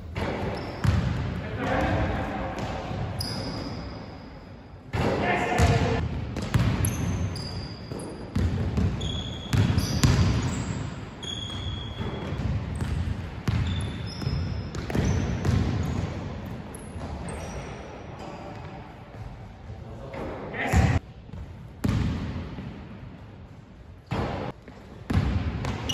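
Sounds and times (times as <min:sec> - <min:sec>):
sneaker squeaks: 0:00.2 - 0:01.2, 0:02.6 - 0:04.5, 0:05.6 - 0:16.0, 0:16.7 - 0:18.7.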